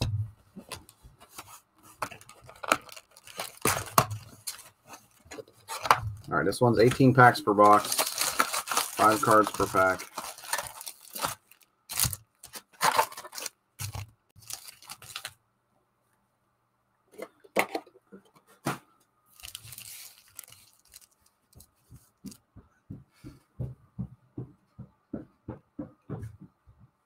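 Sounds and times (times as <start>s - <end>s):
foil card packs crinkling: 0.6s - 15.4s, 19.3s - 21.7s.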